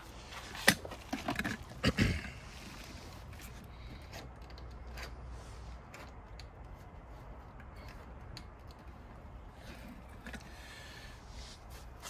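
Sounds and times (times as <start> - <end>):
hands clicking connectors: 7.6 - 9.2.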